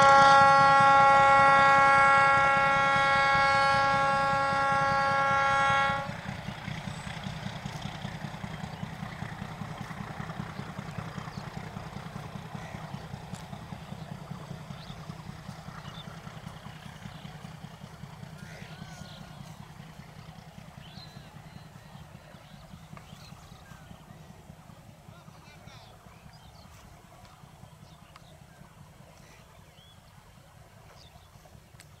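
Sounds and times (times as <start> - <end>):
locomotive air horn blast: 0.0 - 8.3
low rumble of moving train: 0.0 - 32.0.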